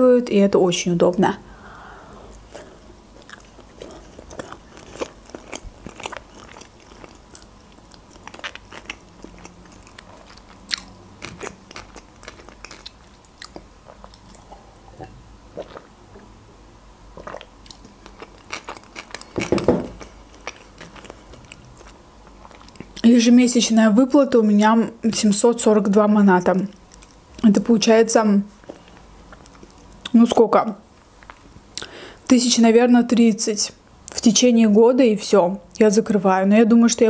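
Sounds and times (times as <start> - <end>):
person chewing: 2.1 - 16.2, 17.1 - 23.0, 28.6 - 30.1, 31.2 - 32.0.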